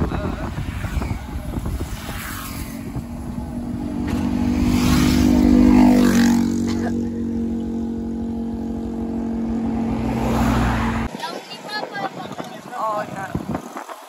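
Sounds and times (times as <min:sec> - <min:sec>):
wind buffeting microphone: 0:00.0 - 0:06.6, 0:07.2 - 0:14.0
motorcycle engine passing: 0:00.5 - 0:11.2.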